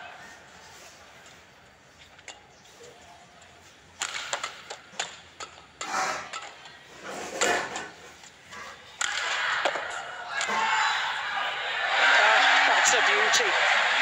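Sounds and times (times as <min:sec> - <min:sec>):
crowd noise: 0:00.0 - 0:04.1, 0:06.4 - 0:14.0
racket striking shuttlecock: 0:04.0 - 0:05.8
crowd cheering: 0:09.0 - 0:14.0.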